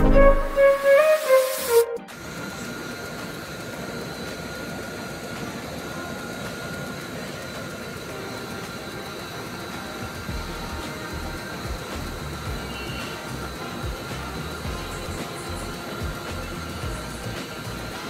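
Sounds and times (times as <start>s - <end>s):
intro music: 0.0s - 2.4s, 10.0s - 18.0s
faint steady whine: 2.0s - 18.0s.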